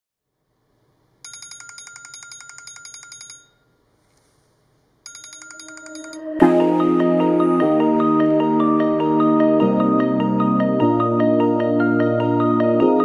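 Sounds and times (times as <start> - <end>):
phone alarm beeping: 1.3 - 3.7, 5.1 - 6.6
music with a sharp hit: 6.4 - 9.6.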